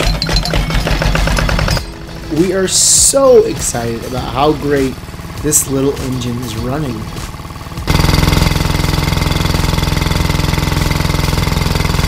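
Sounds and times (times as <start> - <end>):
diesel engine clatter: 0.0 - 12.0
water spraying from exhaust: 2.4 - 12.0.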